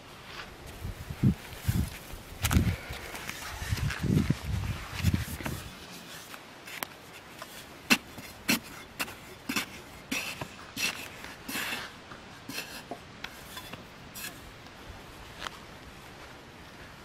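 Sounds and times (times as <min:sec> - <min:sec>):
dirt clumps crumbling: 0:06.3 - 0:14.8.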